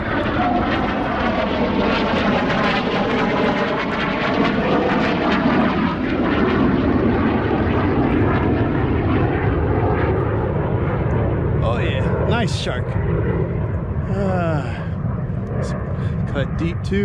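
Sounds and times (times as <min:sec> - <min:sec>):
aircraft engine droning: 0:00.0 - 0:17.0.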